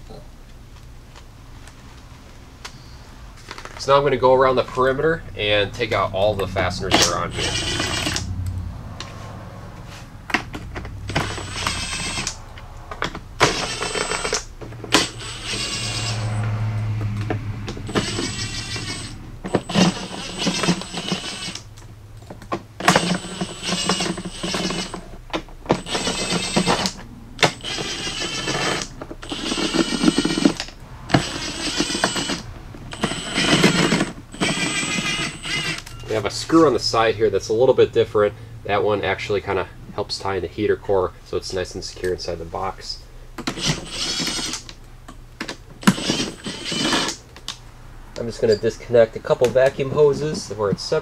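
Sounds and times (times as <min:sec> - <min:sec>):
cordless power driver whirring: 0:06.5 - 0:08.6, 0:10.5 - 0:21.8, 0:22.8 - 0:36.0, 0:43.4 - 0:44.8, 0:45.4 - 0:47.5.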